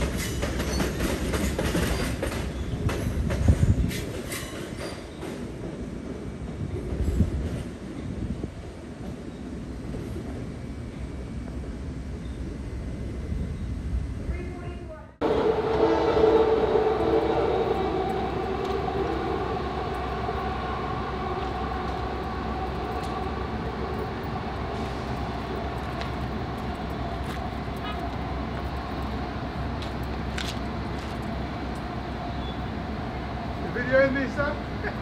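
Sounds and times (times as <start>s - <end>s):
train cars whining: 0.0s - 35.0s
train rumble: 0.0s - 35.0s.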